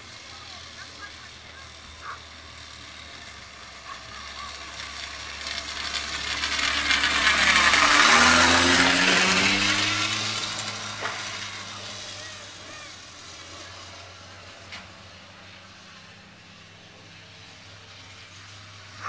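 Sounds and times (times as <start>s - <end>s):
lure line whirring and rattling: 1.8s - 15.5s.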